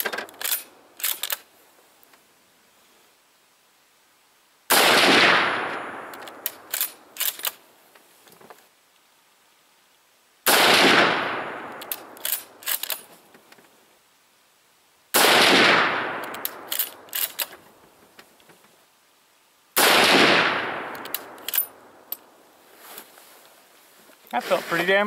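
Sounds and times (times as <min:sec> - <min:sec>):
rifle bolt clicks: 0:00.0 - 0:01.5, 0:06.1 - 0:07.6, 0:11.7 - 0:13.1, 0:16.2 - 0:17.6, 0:20.9 - 0:22.2
rifle shots booming: 0:04.7 - 0:06.8, 0:10.5 - 0:12.3, 0:15.1 - 0:17.1, 0:19.8 - 0:21.9.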